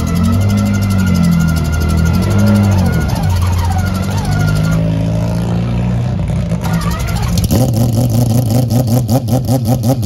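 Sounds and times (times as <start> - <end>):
rotary engine idling and revving: 0.0 - 10.0.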